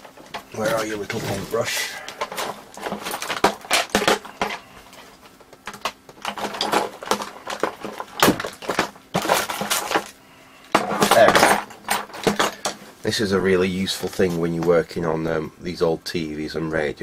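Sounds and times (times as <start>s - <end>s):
tools clattering: 0.0s - 12.8s.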